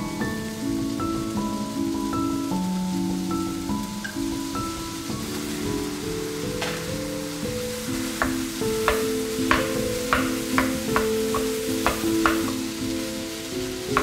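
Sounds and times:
stir-fry sizzling: 0.0s - 14.0s
wooden spatula scraping wok: 5.2s - 14.0s.

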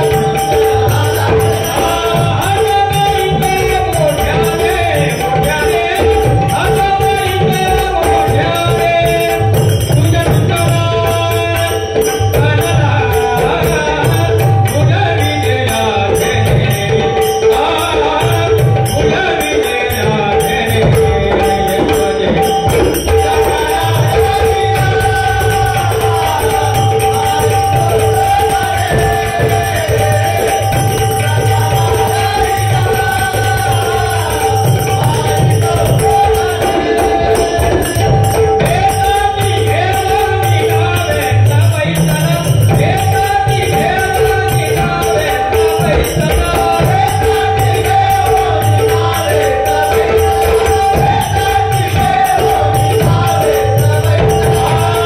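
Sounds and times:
hand cymbals jingling: 0.0s - 55.0s
men singing devotional song: 0.0s - 55.0s.

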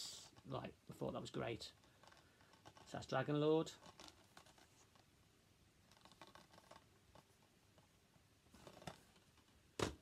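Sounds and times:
plastic cases clicking and rustling: 3.8s - 4.9s, 8.6s - 10.0s.

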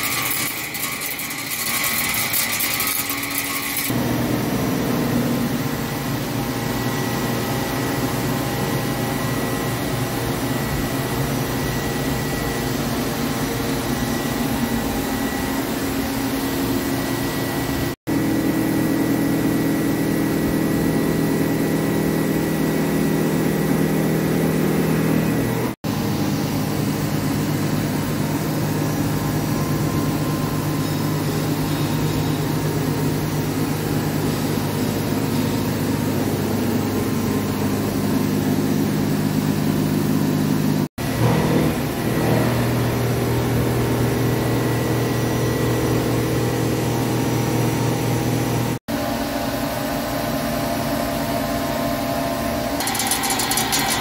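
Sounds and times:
steady machine tones: 0.0s - 17.9s, 52.8s - 54.0s
lathe machinery hum: 0.0s - 54.0s.

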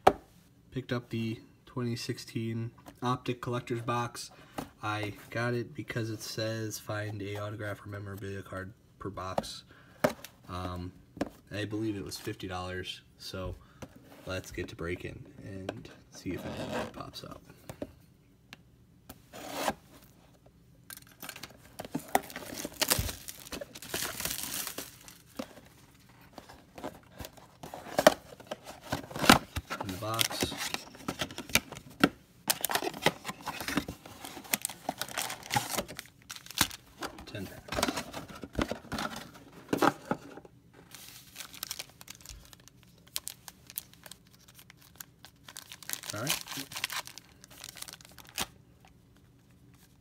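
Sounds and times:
crinkling: 20.9s - 31.9s, 32.5s - 50.0s.

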